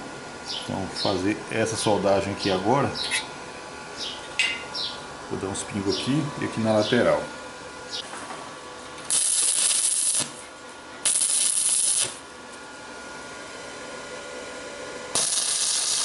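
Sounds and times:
welding arc burning: 9.0s - 12.3s, 15.1s - 16.0s.

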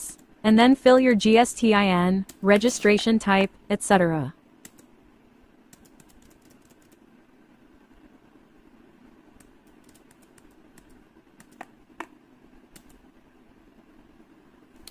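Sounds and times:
faint steady hum: 0.0s - 14.9s
laptop keyboard clicks: 5.7s - 7.0s, 9.4s - 13.0s.

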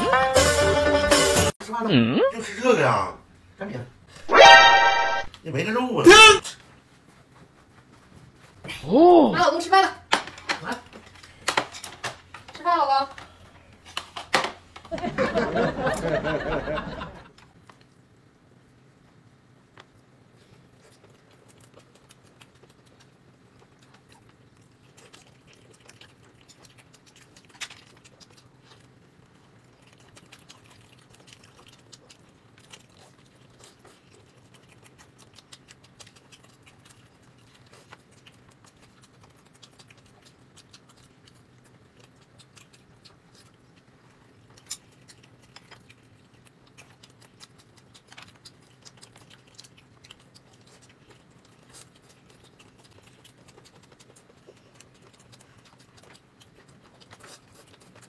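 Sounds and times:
chewing: 17.3s - 58.0s.

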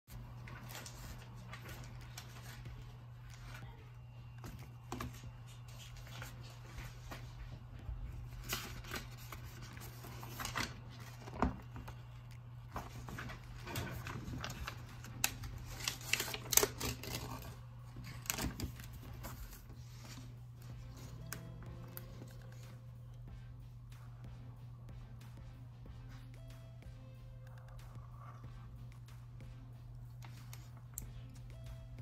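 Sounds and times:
steady low hum: 0.1s - 32.0s
paper rustling: 0.2s - 22.8s.

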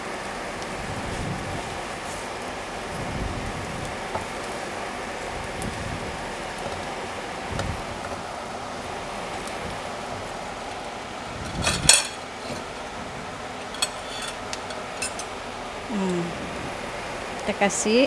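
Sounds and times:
food sizzling in a frying pan: 0.0s - 18.0s
range hood fan rushing: 0.0s - 18.0s
kitchenware clattering: 11.5s - 12.8s, 13.6s - 15.3s.

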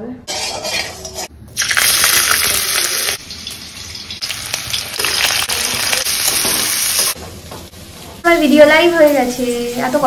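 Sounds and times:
hot oil sizzling: 1.1s - 7.2s.

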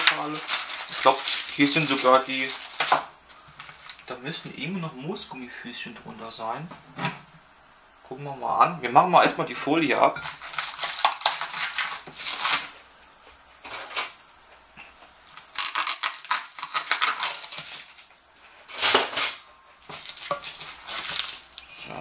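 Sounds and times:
plastic wrap crinkling and tearing: 0.0s - 4.5s, 10.2s - 14.2s, 15.2s - 22.0s.

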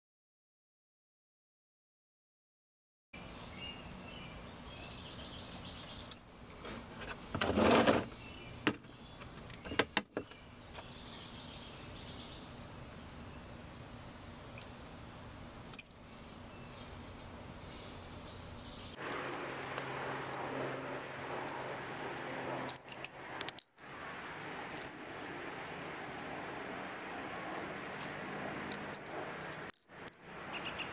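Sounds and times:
outdoor background hiss: 3.2s - 30.9s
faint bird chirps: 30.5s - 30.9s.

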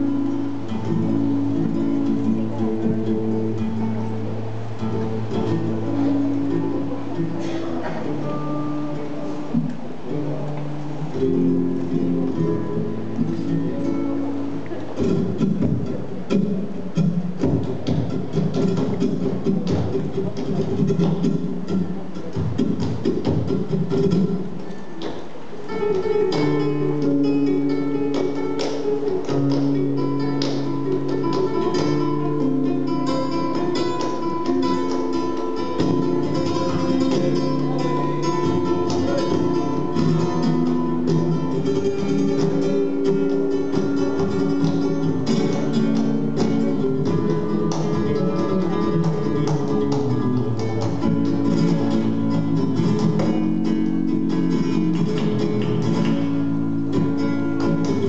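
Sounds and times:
acoustic flamenco guitar: 0.0s - 58.0s
hand clapping: 28.1s - 32.0s, 42.4s - 58.0s.

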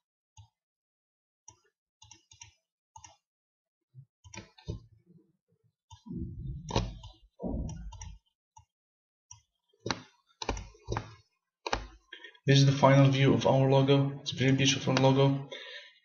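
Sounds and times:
thuds: 6.1s - 8.2s
computer mouse clicking: 6.7s - 8.7s, 9.3s - 12.0s.

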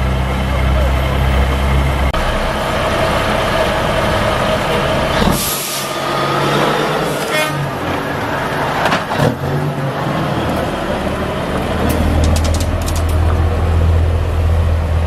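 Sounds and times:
truck diesel engine running: 0.0s - 15.0s
air brakes hissing: 5.2s - 6.2s.

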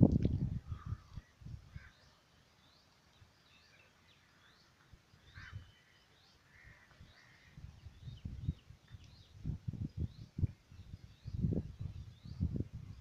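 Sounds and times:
low rumbles on microphone: 0.0s - 1.6s, 7.8s - 13.0s
birds chirping: 0.7s - 13.0s.

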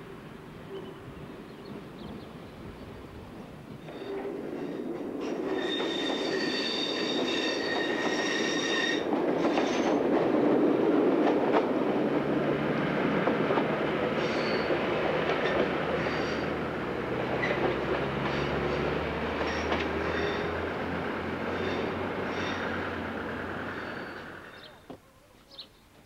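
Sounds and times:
wheels rumbling and clattering on rail: 0.1s - 24.7s
train wheels squealing: 3.8s - 10.0s, 14.2s - 14.8s, 15.4s - 16.5s, 17.4s - 20.7s, 21.5s - 24.8s.

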